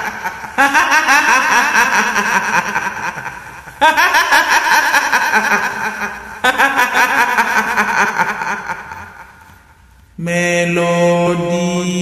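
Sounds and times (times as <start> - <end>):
woman's cackling ghost laugh: 0.0 - 9.5.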